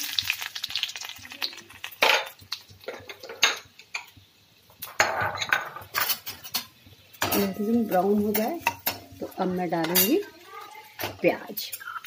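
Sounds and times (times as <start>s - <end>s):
steel spoon clanking on pan: 4.8s - 9.1s, 9.7s - 10.4s.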